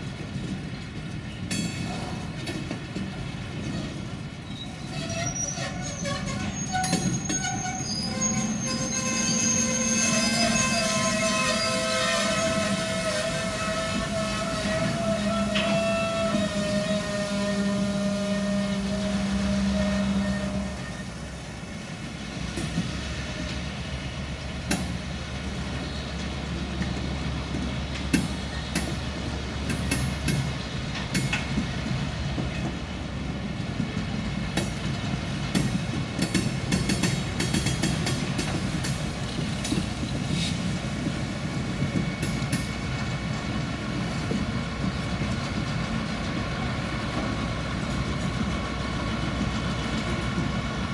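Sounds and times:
wheels clanking over rail joints: 0.0s - 18.6s, 24.5s - 50.9s
freight train rumbling past: 0.0s - 50.9s.

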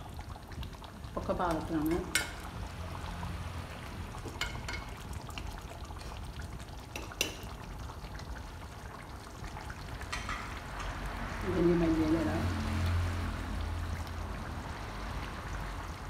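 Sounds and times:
curry simmering and bubbling: 0.0s - 16.0s.

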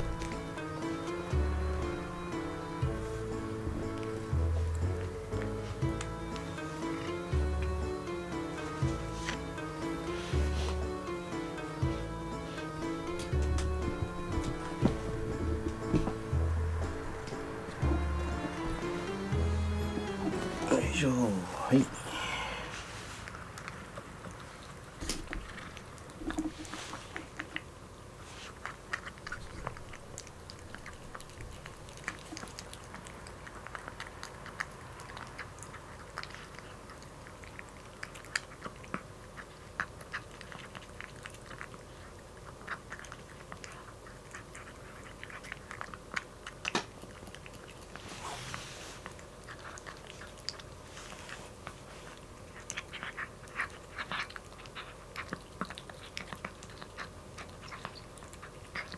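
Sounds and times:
kitten crunching dry food: 22.8s - 58.9s.

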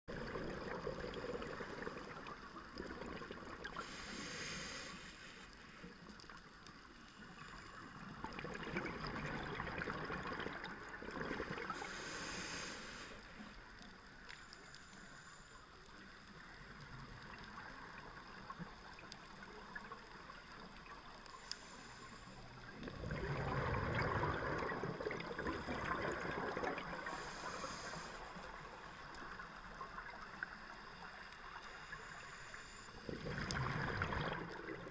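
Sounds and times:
exhaled bubbles gurgling underwater: 0.1s - 5.1s, 6.0s - 14.2s, 16.0s - 34.9s
regulator inhalation hiss: 3.7s - 6.0s, 11.7s - 13.6s, 21.3s - 22.6s, 27.0s - 29.0s, 31.5s - 33.1s.

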